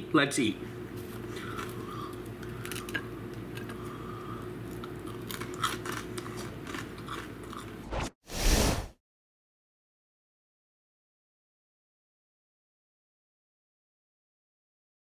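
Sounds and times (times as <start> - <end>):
low room hum: 0.0 - 8.0
person chewing crunchy food: 1.0 - 7.8.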